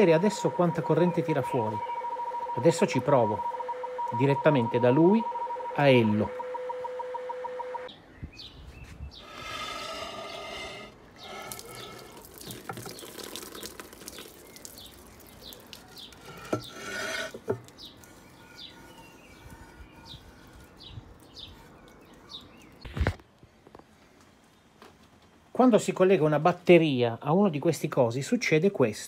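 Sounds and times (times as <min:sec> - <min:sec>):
small birds chirping: 0:07.9 - 0:16.8, 0:17.5 - 0:24.8.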